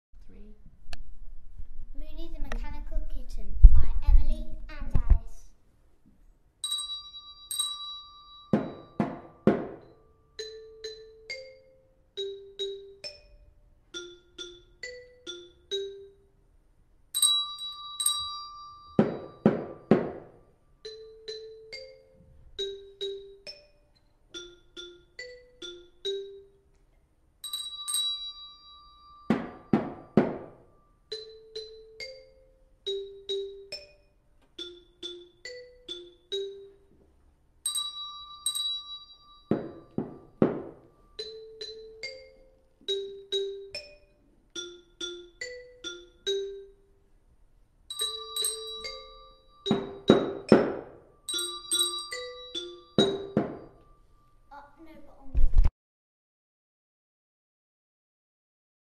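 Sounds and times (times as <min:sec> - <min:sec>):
tuned mallet percussion melody: 0:06.6 - 0:26.8, 0:27.4 - 0:47.2, 0:47.8 - 0:54.6.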